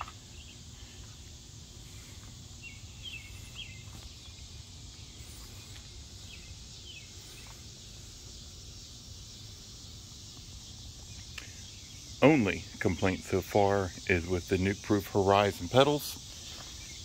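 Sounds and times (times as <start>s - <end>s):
steady low rumble: 0.0s - 16.4s
high hiss: 0.0s - 17.0s
small bird chirps: 1.8s - 14.2s.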